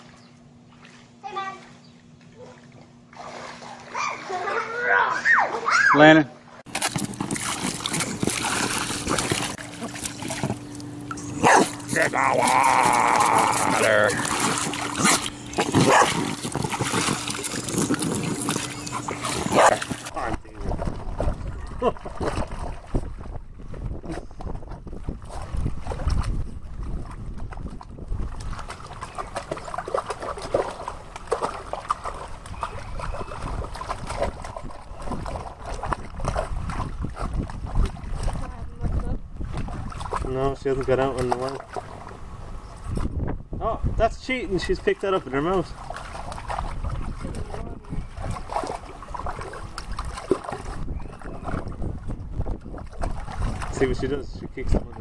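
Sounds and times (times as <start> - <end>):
water splashing: 0.0 - 5.8, 6.4 - 23.4, 25.0 - 43.2, 44.7 - 55.0
dog barking and growling: 11.2 - 16.4, 18.9 - 20.0.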